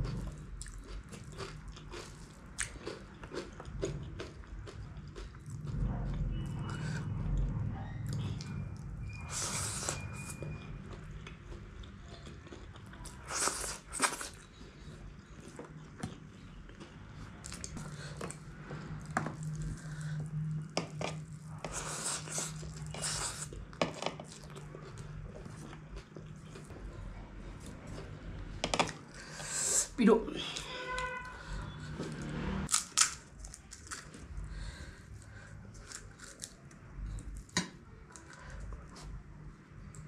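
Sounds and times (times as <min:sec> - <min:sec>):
chewing noodles: 0:00.0 - 0:28.3.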